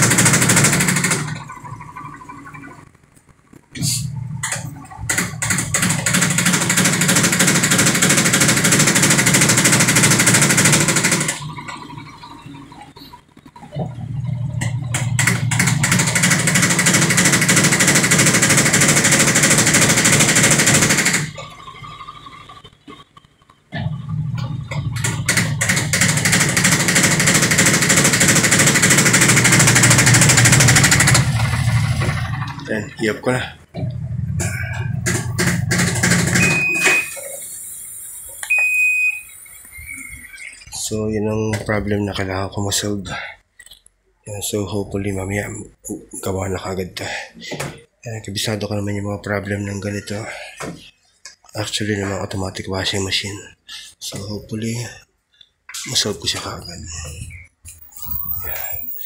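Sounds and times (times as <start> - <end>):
washing machine spin rattling: 0.0 - 3.2, 4.1 - 37.1.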